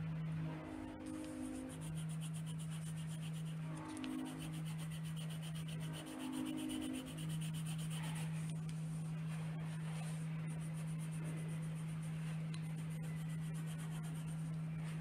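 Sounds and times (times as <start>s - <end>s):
low electrical hum: 0.0s - 15.0s
pencil scratching on paper: 1.0s - 8.5s, 10.4s - 14.5s.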